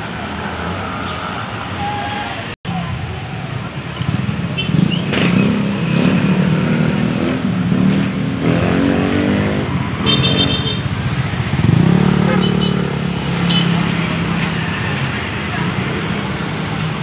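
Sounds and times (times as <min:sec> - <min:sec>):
motorcycle and car engines passing: 0:02.7 - 0:17.0
engine revving: 0:04.2 - 0:14.8.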